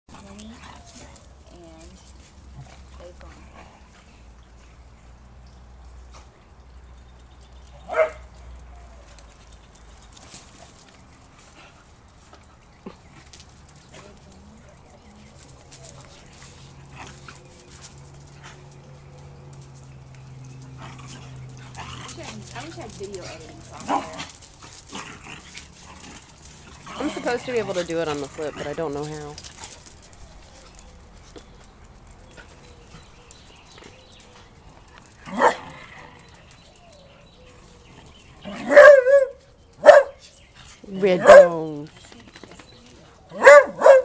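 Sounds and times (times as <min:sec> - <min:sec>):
dog barking: 0:07.9 - 0:08.3, 0:35.3 - 0:35.6, 0:38.6 - 0:40.2, 0:41.2 - 0:41.6, 0:43.3 - 0:44.0
dogs sniffing: 0:07.9 - 0:44.0.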